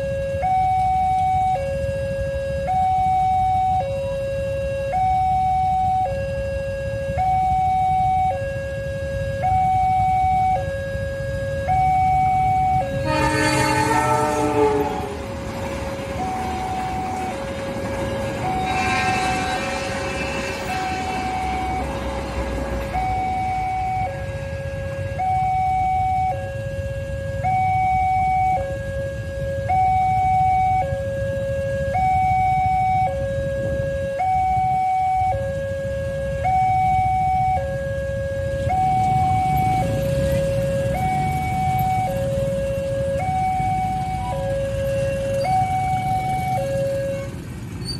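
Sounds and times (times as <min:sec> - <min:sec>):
low traffic rumble: 0:00.0 - 0:47.9
two-tone crossing alarm: 0:00.0 - 0:47.9
motorcycles idling rumble: 0:11.2 - 0:21.8, 0:34.6 - 0:47.9
train horn: 0:12.8 - 0:15.4, 0:16.6 - 0:22.2
level crossing two-tone alarm: 0:16.1 - 0:22.2, 0:22.9 - 0:26.8, 0:36.3 - 0:47.4.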